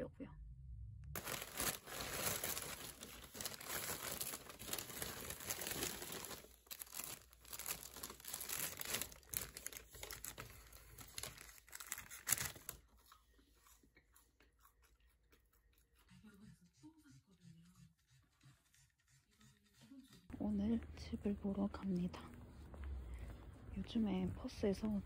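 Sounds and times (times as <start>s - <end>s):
paper wrapping rustling and tearing: 1.2s - 12.8s.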